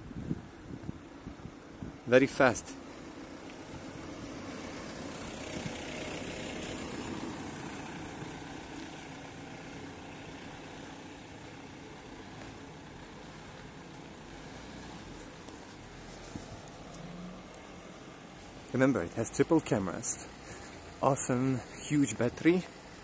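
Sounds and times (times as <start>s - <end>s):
car engine driving past: 14.2s - 18.2s.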